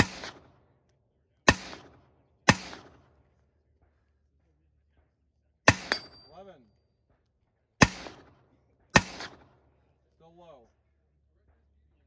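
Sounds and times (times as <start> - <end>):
rifle shots with echo: 0.0 - 0.8, 1.4 - 3.4, 5.6 - 6.4, 7.8 - 9.9.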